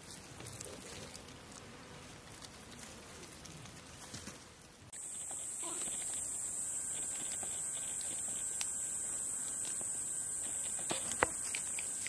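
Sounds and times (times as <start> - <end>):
insects chirping: 4.9 - 12.0.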